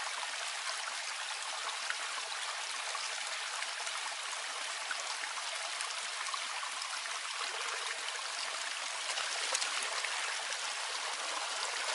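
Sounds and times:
water pouring into pool: 4.2s - 11.9s.

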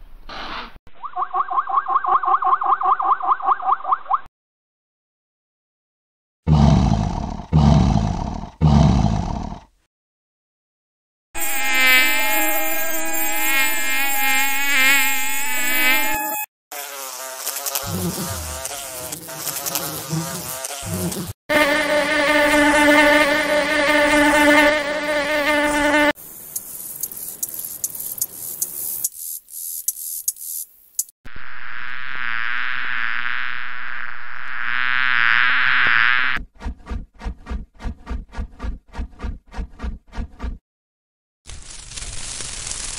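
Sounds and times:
flies buzzing in flight: 11.4s - 29.1s, 31.3s - 36.4s
rapid dry insect clicks: 26.2s - 31.2s, 41.5s - 42.9s.

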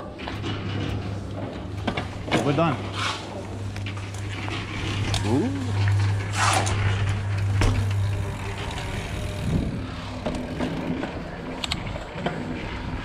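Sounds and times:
bike tyre and wind noise: 0.0s - 13.0s
low vehicle engine hum: 3.2s - 13.0s.

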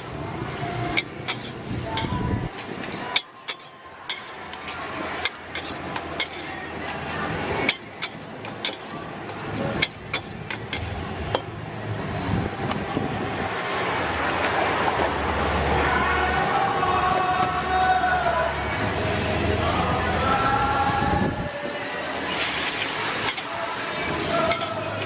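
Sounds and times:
metal ladle clanking against wok: 0.8s - 6.8s, 7.6s - 11.5s, 22.6s - 23.5s, 24.4s - 25.0s.

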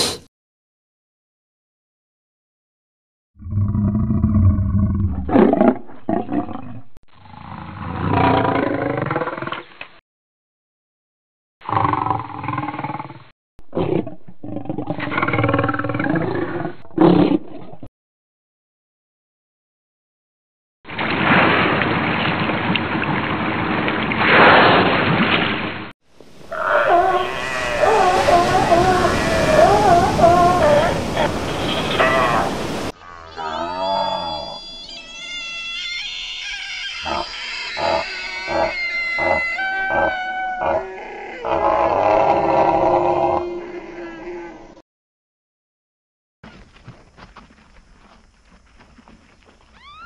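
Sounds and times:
lion roaring: 3.4s - 9.6s, 13.7s - 17.7s, 26.4s - 31.4s, 37.0s - 44.7s
deer calling: 26.5s - 40.8s.

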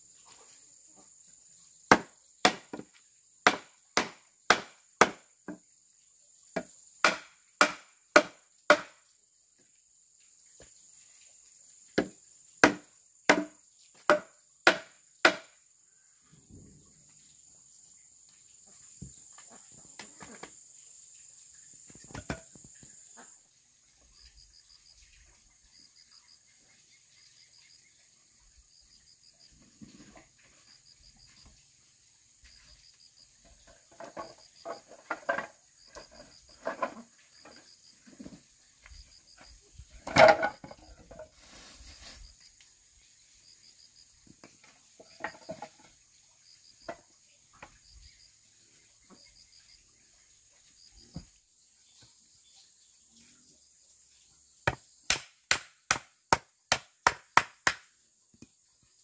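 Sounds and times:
insects chirping trills: 0.0s - 59.0s
tool chopping wood: 1.9s - 5.6s, 6.6s - 9.0s, 12.0s - 15.6s, 22.0s - 22.6s, 54.6s - 57.9s
high insect drone: 5.4s - 55.0s.

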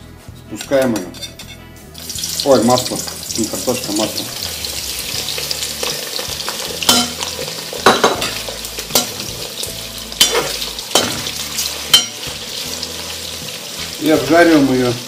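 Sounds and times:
metal spoon scraping pot: 0.6s - 1.6s
potatoes sizzling in hot oil: 2.0s - 15.0s.

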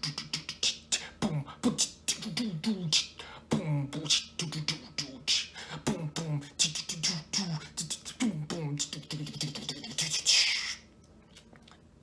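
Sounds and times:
person beatboxing: 0.0s - 10.9s.

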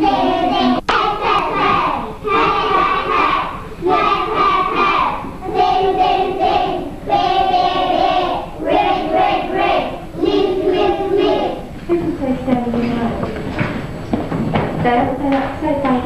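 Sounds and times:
young children singing: 0.0s - 11.7s.

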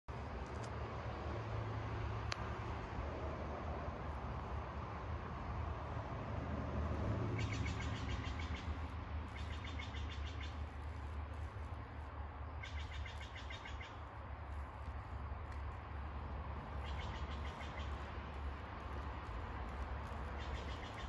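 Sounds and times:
bird trilling: 7.4s - 10.7s, 12.6s - 14.0s, 16.8s - 18.1s, 20.4s - 21.0s.

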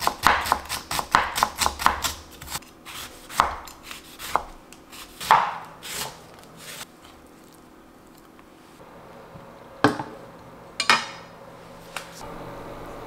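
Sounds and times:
knife cutting on a cutting board: 0.0s - 7.2s.

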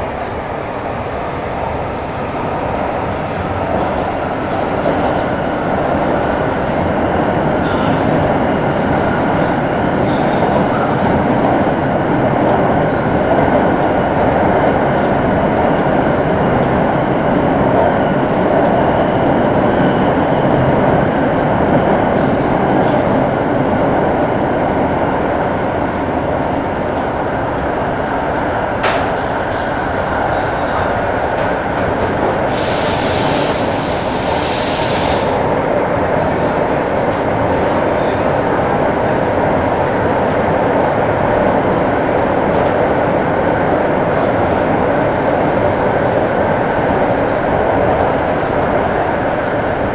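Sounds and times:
train rumbling through a tunnel: 0.0s - 49.9s
loud hiss: 32.5s - 35.4s.

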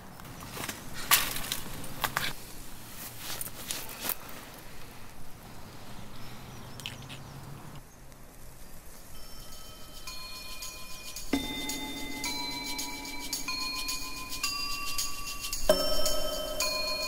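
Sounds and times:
sticks crackling and snapping: 0.2s - 2.4s
faint chime-like tones: 9.0s - 17.0s.

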